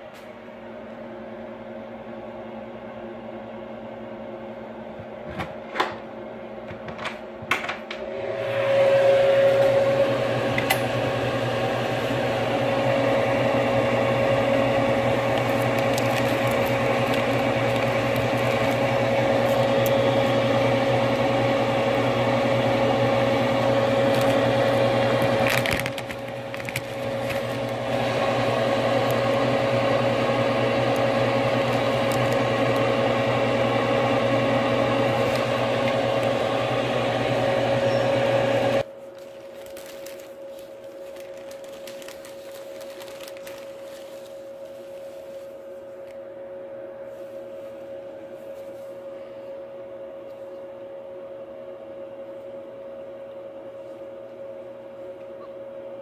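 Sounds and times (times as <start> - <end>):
fan humming: 0.0 - 55.2.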